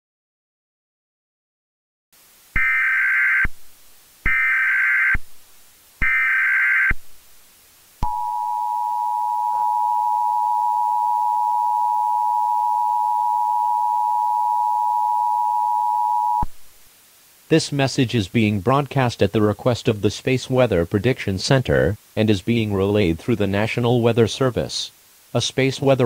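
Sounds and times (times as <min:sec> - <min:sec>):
two-tone alert signal: 0:08.0 - 0:16.5.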